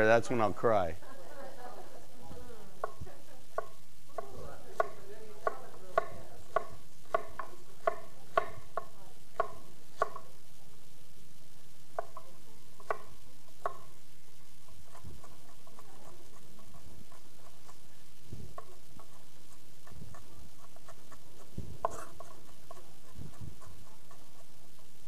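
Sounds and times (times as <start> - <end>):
knife chopping on wooden board: 3.6 - 10.3, 12.0 - 13.9, 19.8 - 24.4.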